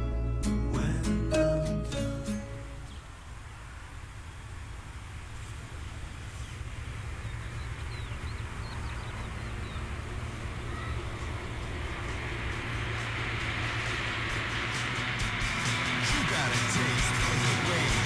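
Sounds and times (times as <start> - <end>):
car approaching on road: 0.0 - 18.0
bird chirps: 5.8 - 11.6.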